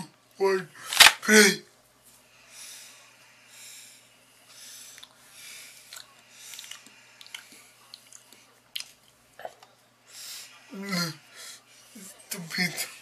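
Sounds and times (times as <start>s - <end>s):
person breathing: 2.2s - 7.8s.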